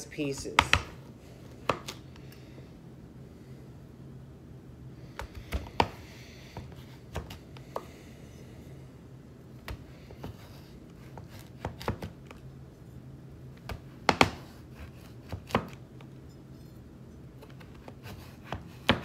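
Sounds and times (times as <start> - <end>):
knife slicing sweet potato: 9.6 - 12.4, 13.6 - 15.8, 17.4 - 19.0.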